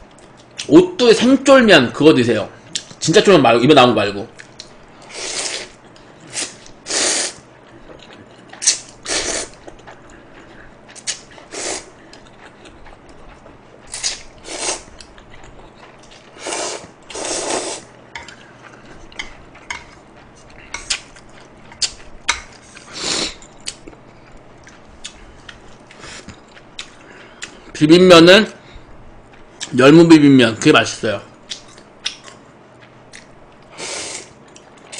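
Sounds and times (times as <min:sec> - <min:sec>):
man slurping noodles: 0:05.1 - 0:07.4, 0:09.0 - 0:09.6, 0:11.5 - 0:11.9, 0:14.0 - 0:14.9, 0:16.4 - 0:17.9, 0:22.8 - 0:23.5, 0:33.8 - 0:34.4
chewing clicks: 0:31.4 - 0:33.7.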